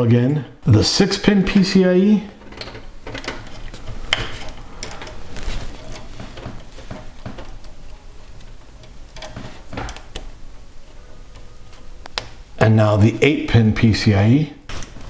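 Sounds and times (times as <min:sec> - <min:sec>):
cable rustling: 0:01.5 - 0:12.6.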